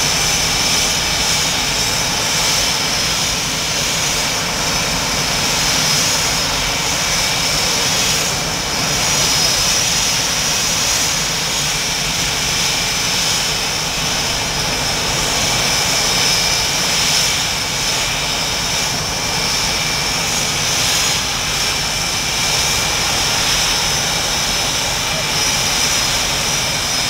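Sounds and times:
high steady jet whine: 0.0 - 27.0
jet engines rushing: 0.0 - 27.0.

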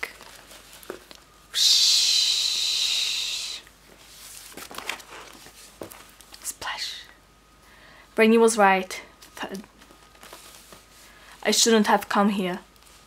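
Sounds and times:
paper page turning: 0.0 - 1.3, 4.1 - 6.3, 9.8 - 10.9
person hissing with mouth: 1.5 - 3.7.

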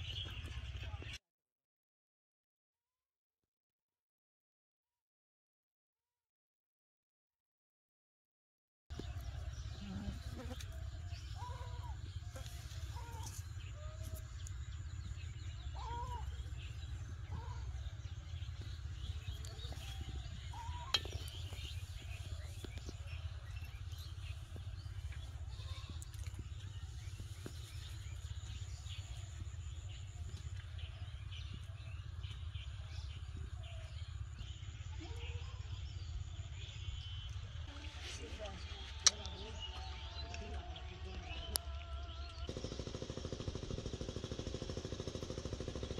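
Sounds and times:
small birds chirping: 0.0 - 1.2, 8.9 - 45.9
steady low rumble: 8.9 - 39.8.

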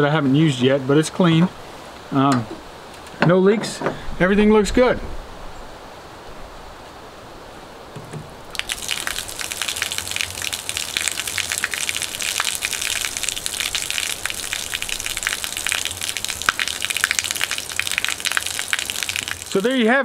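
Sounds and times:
water gushing onto concrete: 8.5 - 19.9.

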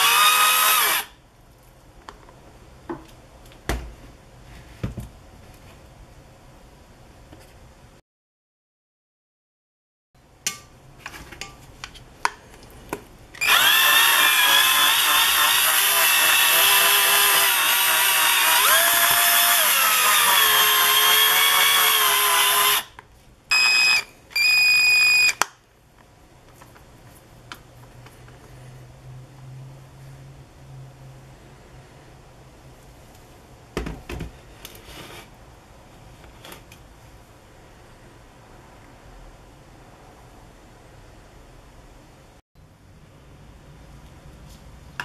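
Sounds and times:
electric drill motor whining: 0.0 - 1.1, 13.4 - 22.9, 23.5 - 25.4.

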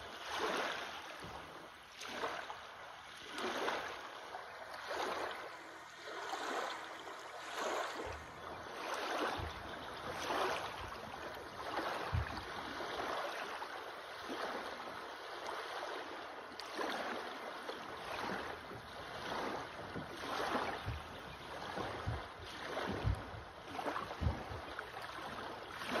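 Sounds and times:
small waves lapping: 0.0 - 26.0
low thuds: 22.9 - 23.4, 24.2 - 24.6.

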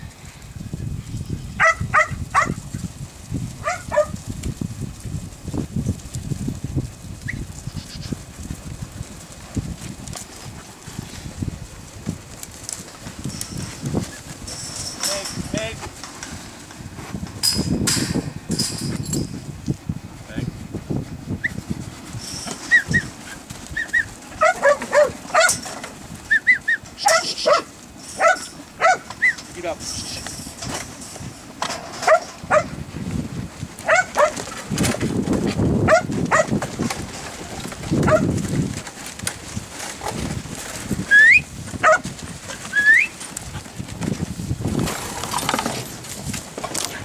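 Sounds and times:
sheep shuffling: 0.4 - 47.0
dog barking: 1.6 - 2.6, 3.6 - 4.2, 24.4 - 25.6, 27.0 - 29.1, 32.0 - 32.8, 33.8 - 34.4, 35.9 - 36.5, 38.1 - 38.3, 41.8 - 42.0
rising whistle-like calls: 26.3 - 27.4, 41.1 - 41.4, 42.7 - 43.1.

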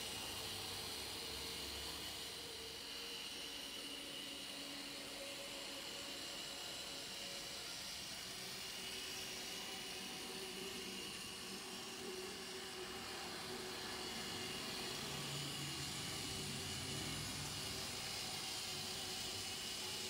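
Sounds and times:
model train whirring: 0.0 - 20.0.

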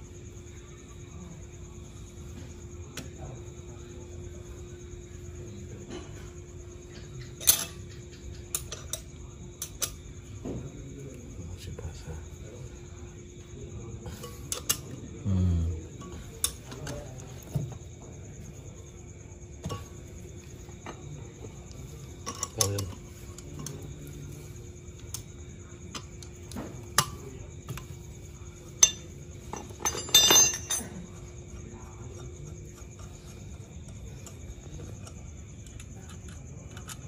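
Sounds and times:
faint steady hum: 0.0 - 37.0
metal tools clinking and knocking: 5.9 - 10.0, 14.1 - 15.0, 19.6 - 25.2, 28.7 - 31.4
ringing metallic clinks: 7.2 - 9.0, 28.7 - 31.2.

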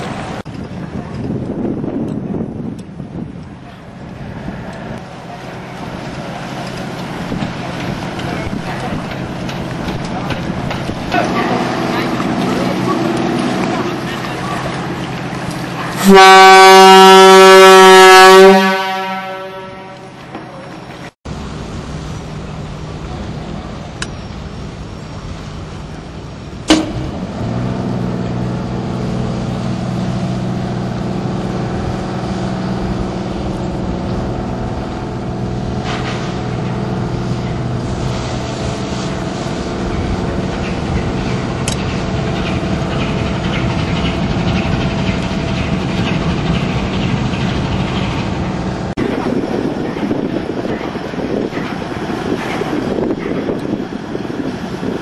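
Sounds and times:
boat engine droning: 0.0 - 55.0
deep ship's horn blast: 11.0 - 20.8
sharp knock: 26.7 - 27.1.

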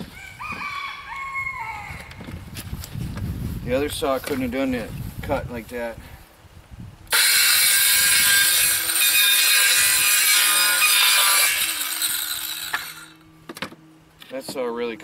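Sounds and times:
circular saw cutting: 7.1 - 13.2.

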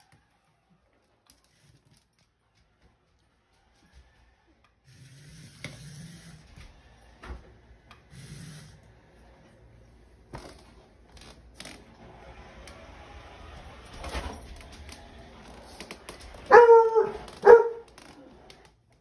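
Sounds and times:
toy motor whirring: 4.8 - 6.5.

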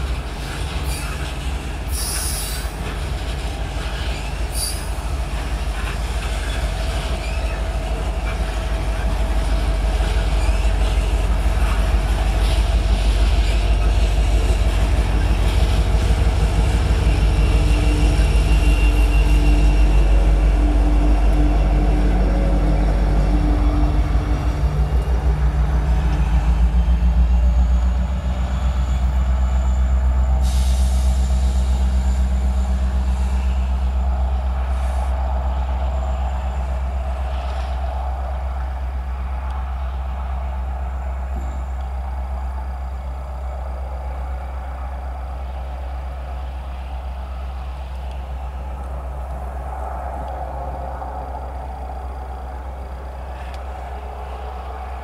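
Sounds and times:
train wheels clattering over rail joints: 0.0 - 19.9
diesel locomotive engine drone: 0.0 - 55.0.

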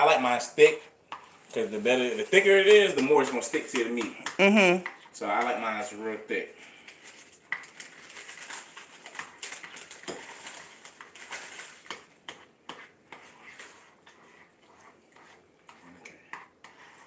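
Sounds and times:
spoon stirring in a bowl: 0.0 - 17.0
sugar pouring from plastic bag: 7.0 - 12.1.

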